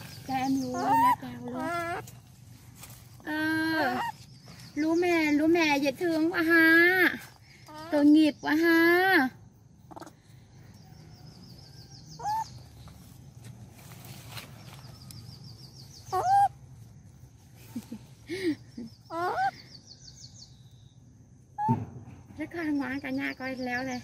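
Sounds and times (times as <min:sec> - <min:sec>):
faint high bird chirps: 0:09.9 - 0:13.2, 0:14.5 - 0:16.6.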